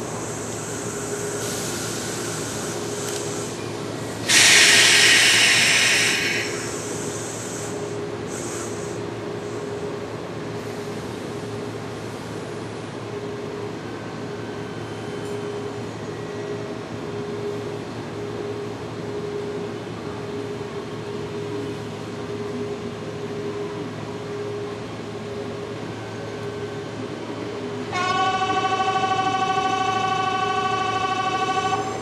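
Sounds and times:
train electrical hum: 0:00.0 - 0:32.0
station bell ringing: 0:13.0 - 0:32.0.

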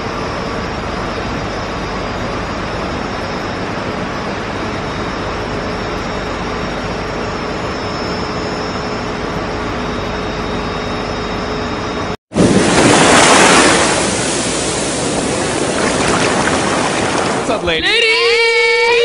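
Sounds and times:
machinery hum: 0:00.0 - 0:19.0
ocean wave surging up beach: 0:12.3 - 0:17.6.

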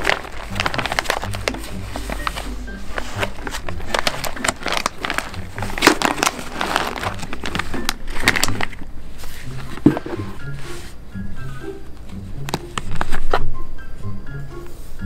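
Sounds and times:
foil bags crinkling: 0:00.0 - 0:10.2.

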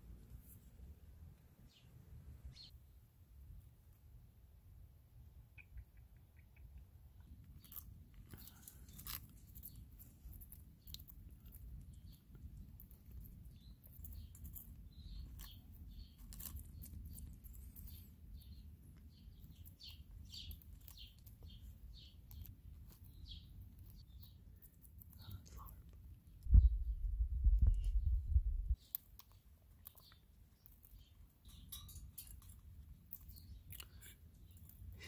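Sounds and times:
bird crunching seeds: 0:07.4 - 0:26.4.

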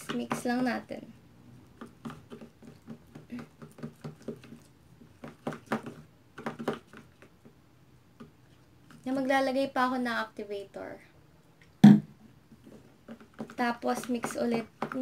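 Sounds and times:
plastic spoon stirring glue: 0:00.0 - 0:01.0, 0:01.6 - 0:09.3, 0:12.5 - 0:15.0.

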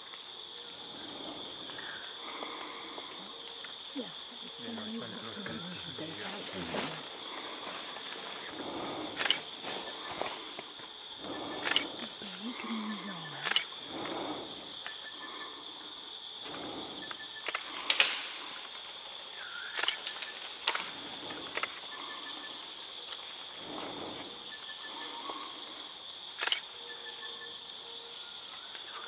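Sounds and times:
high-pitched insect drone: 0:00.0 - 0:29.0
sharp clicks: 0:19.7 - 0:20.9.

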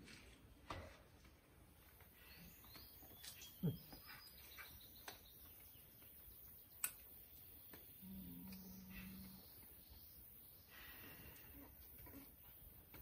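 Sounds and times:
faint bird chirps: 0:02.1 - 0:12.3.

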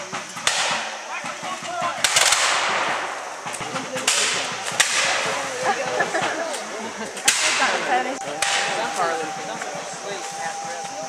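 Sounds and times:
musket shots: 0:00.4 - 0:01.4, 0:02.0 - 0:05.4, 0:07.2 - 0:08.8
men shouting: 0:03.7 - 0:11.0.

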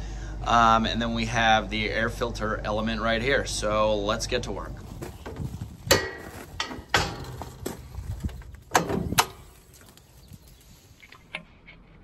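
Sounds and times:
tractor latches clicking: 0:05.9 - 0:09.6.

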